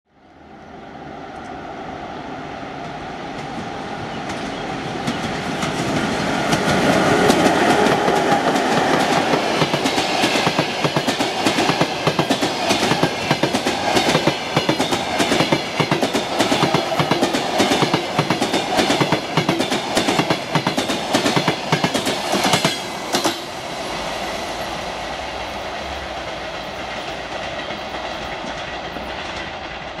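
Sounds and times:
train rumble: 0.3s - 30.0s
train wheels clattering over rail joints: 5.1s - 23.5s.

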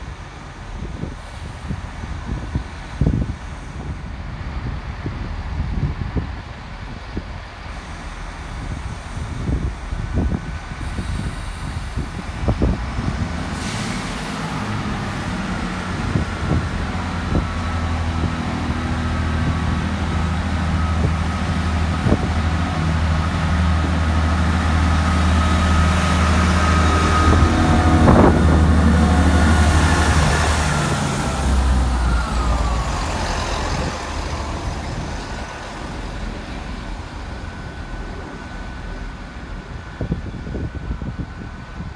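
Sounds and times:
diesel train engine drone: 0.0s - 41.9s
train whine: 0.0s - 41.9s.

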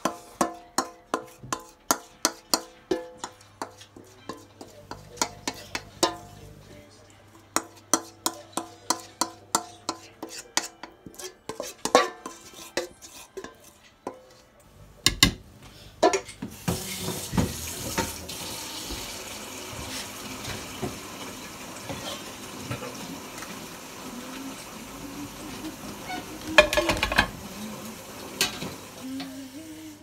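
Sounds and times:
spatula scraping metal bowl: 0.0s - 6.3s, 7.6s - 14.5s
running tap water: 16.4s - 30.0s.

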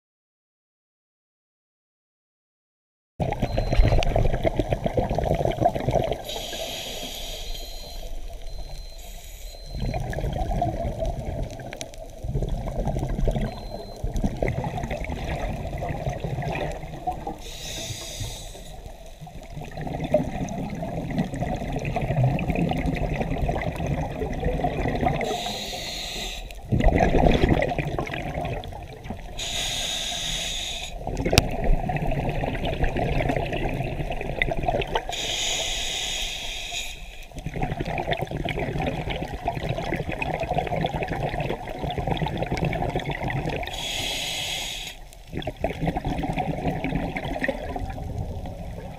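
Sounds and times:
underwater bubbling rumble: 3.2s - 6.3s, 9.6s - 17.5s, 18.6s - 25.4s, 26.6s - 29.4s, 31.0s - 35.1s, 37.3s - 44.0s, 45.1s - 48.9s
regulator breathing hiss: 6.2s - 8.2s, 9.0s - 9.6s, 17.4s - 18.9s, 25.2s - 26.6s, 29.4s - 31.1s, 35.1s - 37.4s, 43.7s - 45.1s.

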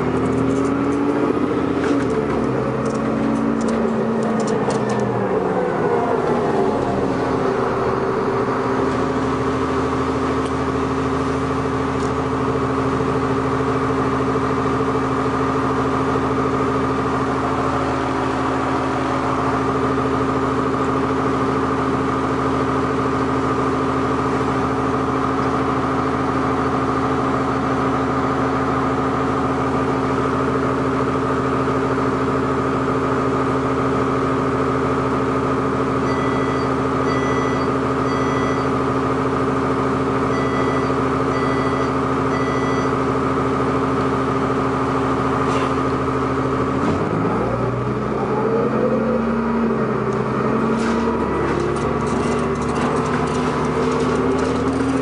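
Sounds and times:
bus engine idling: 0.0s - 55.0s
short electronic beeps: 36.1s - 38.8s, 40.3s - 43.0s.

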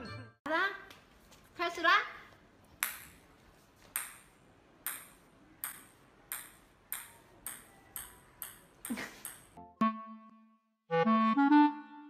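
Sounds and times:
ping-pong ball bouncing on tile: 2.8s - 3.2s, 3.9s - 9.6s.

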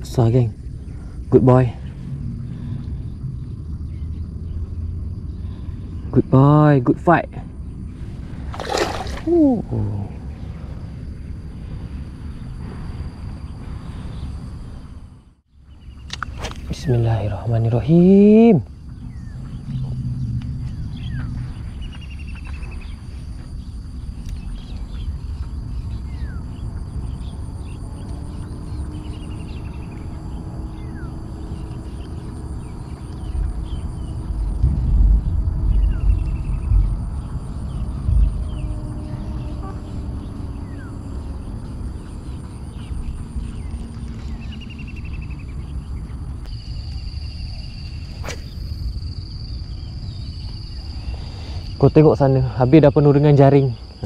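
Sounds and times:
insects droning: 0.0s - 54.0s
wind rumble on microphone: 0.0s - 54.0s
birds calling: 15.5s - 52.3s.

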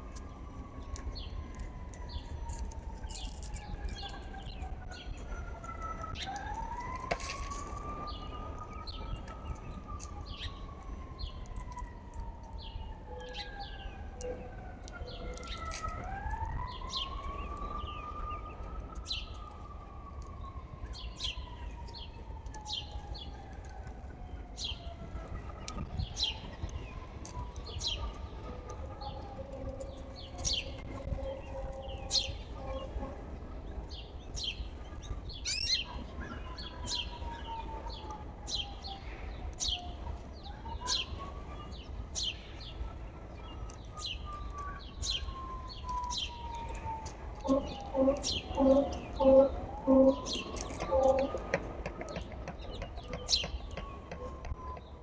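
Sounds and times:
distant siren wailing: 0.0s - 55.0s
small birds chirping: 43.4s - 55.0s.

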